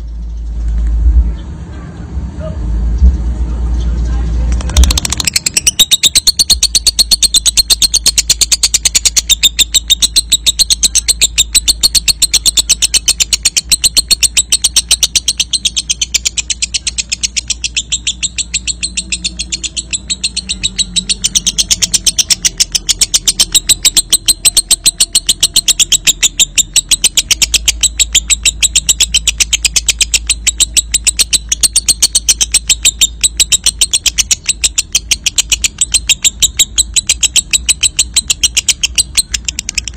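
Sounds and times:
lovebird shrill chirping: 0:04.6 - 0:39.9.

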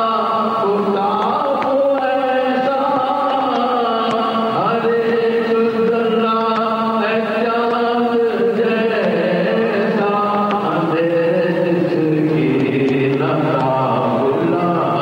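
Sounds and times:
man singing through a sound system: 0:00.0 - 0:15.0.

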